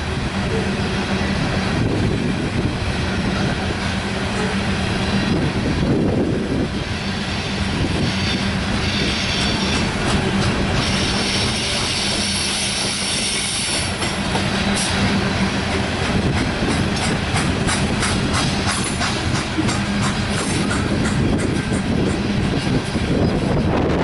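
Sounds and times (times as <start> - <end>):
train cars rumbling on steel wheels: 0.0 - 24.0
wheels clicking over rail joints: 15.7 - 23.0.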